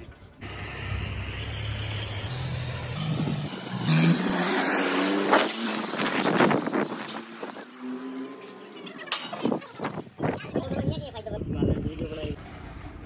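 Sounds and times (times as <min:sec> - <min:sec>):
vehicle engine speeding up: 0:00.4 - 0:09.0.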